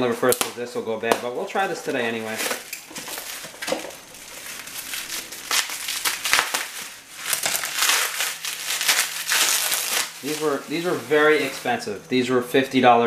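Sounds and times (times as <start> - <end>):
plastic wrapping crinkling: 1.3 - 12.7.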